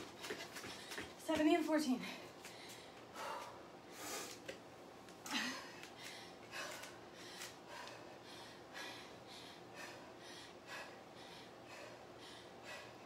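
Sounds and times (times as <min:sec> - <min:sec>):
woman breathing hard: 0:02.0 - 0:04.5, 0:05.2 - 0:13.0.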